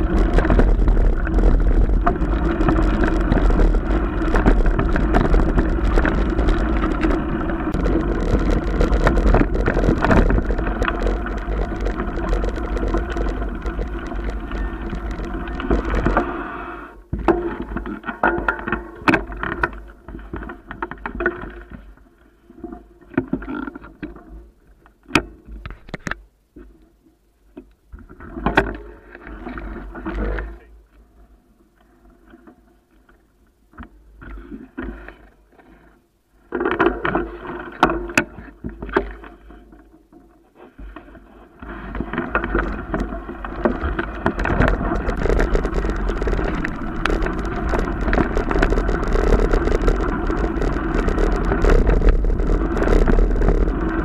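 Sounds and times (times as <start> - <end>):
mountain bike rattling: 0.0 - 16.4, 42.0 - 54.0.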